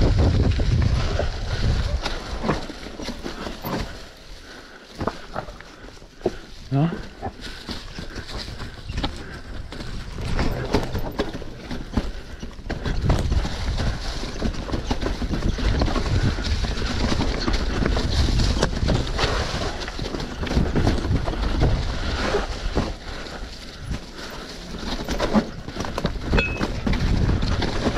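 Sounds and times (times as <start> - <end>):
wind buffeting microphone: 0.0 - 2.7, 8.4 - 24.3, 25.4 - 27.9
bike rattling and knocking: 0.0 - 27.9
bike tyres rumbling over dirt: 0.0 - 27.9.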